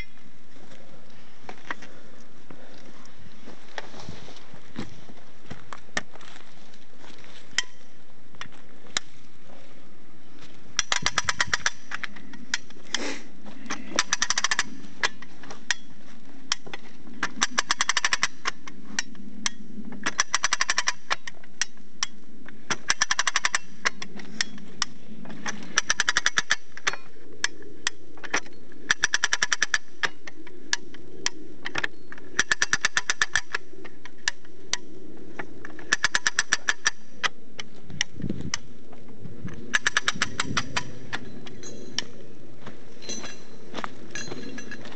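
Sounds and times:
hand winch ratchet clicking: 10.8 - 13.0, 13.7 - 15.9, 16.5 - 37.4, 39.7 - 42.1.

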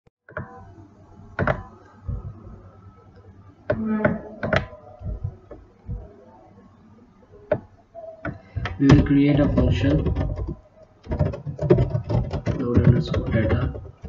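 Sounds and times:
computer mouse and keyboard clicks: 1.4 - 1.7, 8.2 - 14.0.

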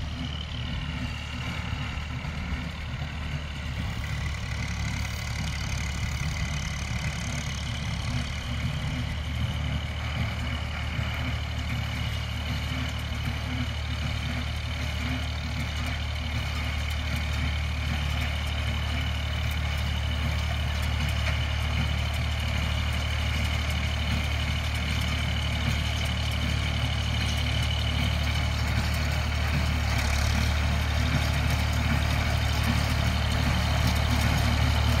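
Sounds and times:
tractor engine running: 0.0 - 35.0.

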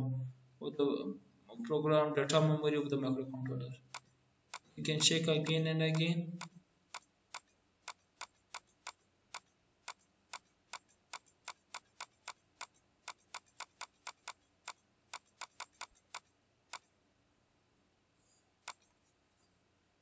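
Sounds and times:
computer mouse clicking: 3.9 - 16.9, 18.6 - 19.1.

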